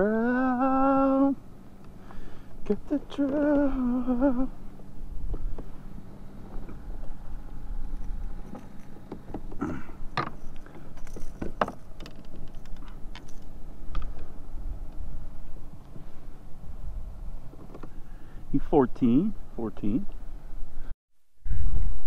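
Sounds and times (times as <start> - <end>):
wind rumbling on microphone: 6.5 - 18.6
handling clicks and knocks: 8.0 - 14.3.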